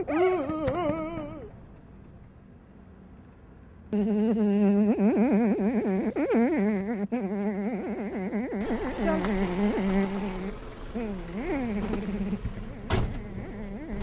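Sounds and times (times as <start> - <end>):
bee buzzing: 8.6 - 14.0.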